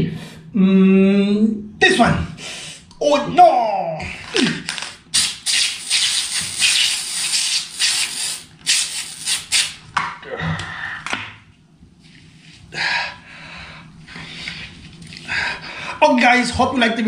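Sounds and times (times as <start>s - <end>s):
aerosol foam spray hissing: 5.1s - 9.8s.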